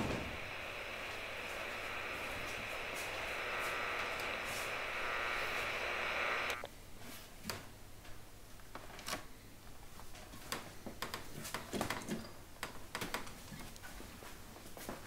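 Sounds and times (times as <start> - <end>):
faint clicks: 0.0 - 6.7
steady hiss: 0.0 - 6.7.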